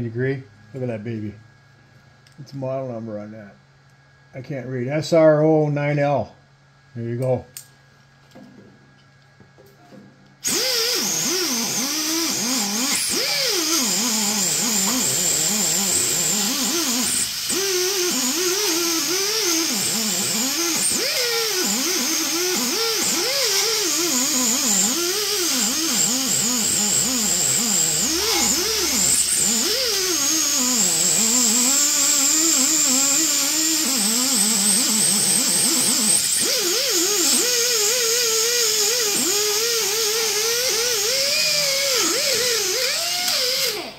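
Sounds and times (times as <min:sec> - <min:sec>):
air tool whining: 0:10.4 - 0:43.9.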